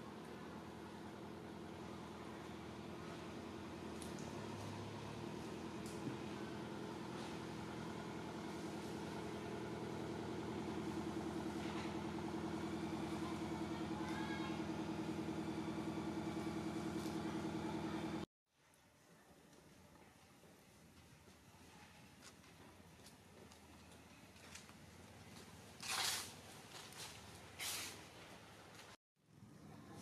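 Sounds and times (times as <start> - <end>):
engine idling: 0.0 - 18.3.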